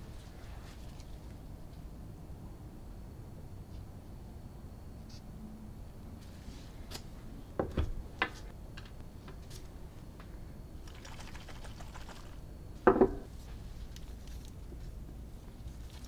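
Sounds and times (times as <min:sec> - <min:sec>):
glass bottle set down: 0:12.9 - 0:13.3.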